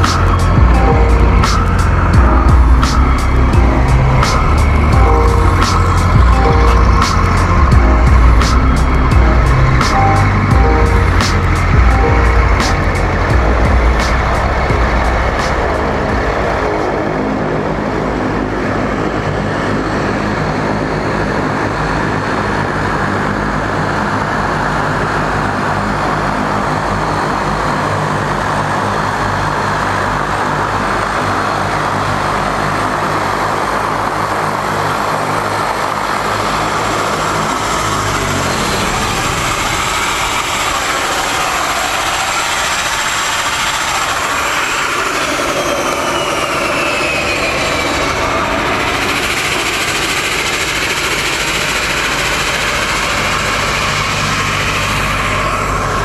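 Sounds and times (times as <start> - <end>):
low propeller drone: 0.0 - 56.0
turbine hiss: 34.2 - 56.0.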